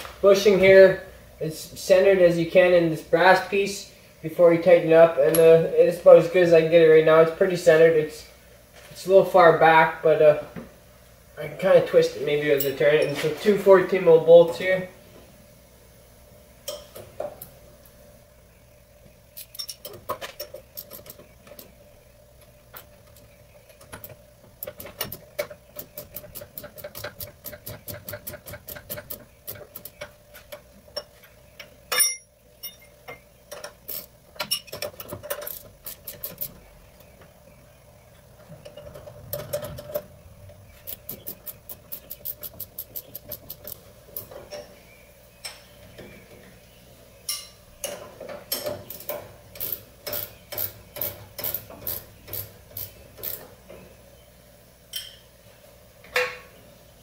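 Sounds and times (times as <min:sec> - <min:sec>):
faint steady hum: 0:00.0 - 0:57.0
hand ratchet clicking: 0:24.6 - 0:30.1, 0:40.9 - 0:44.3, 0:48.9 - 0:53.4
metal clank: 0:31.9 - 0:33.8.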